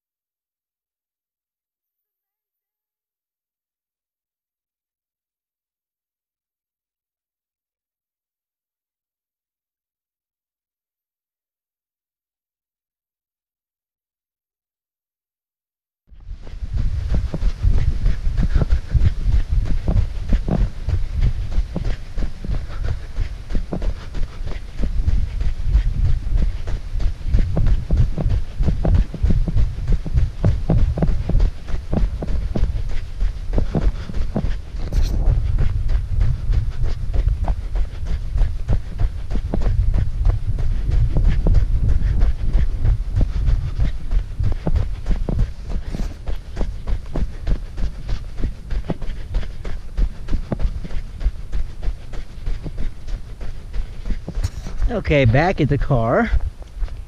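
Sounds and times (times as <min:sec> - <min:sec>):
low camera movement rumble: 0:16.1 - 0:57.0
running footsteps on snow: 0:16.1 - 0:57.0.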